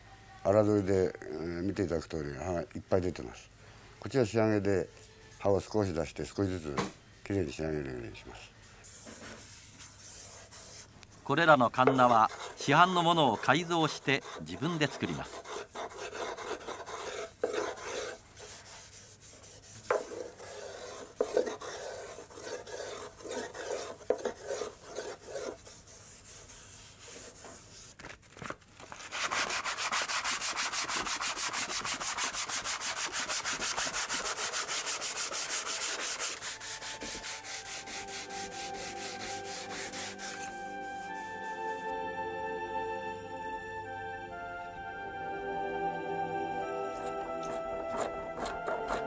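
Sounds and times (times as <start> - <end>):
soft music: 0.0 - 27.2, 32.4 - 49.0
sanding wood by hand: 11.9 - 27.9, 29.0 - 41.8.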